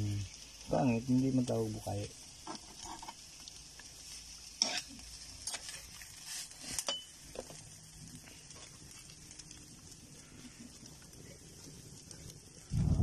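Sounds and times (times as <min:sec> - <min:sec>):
faint steady hiss: 0:00.0 - 0:13.0
metal spatula scraping frying pan: 0:02.4 - 0:03.3, 0:04.5 - 0:07.2.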